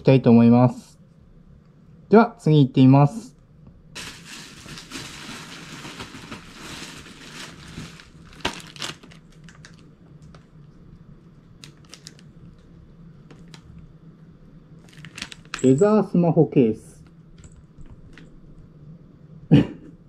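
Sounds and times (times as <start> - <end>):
plastic bag crinkling: 4.0 - 10.4, 11.6 - 12.4, 14.8 - 15.8.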